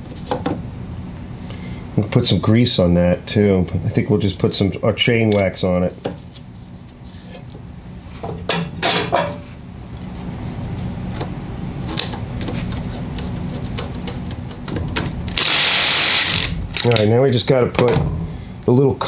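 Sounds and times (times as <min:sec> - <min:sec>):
metal parts clicking: 0:15.3 - 0:17.1.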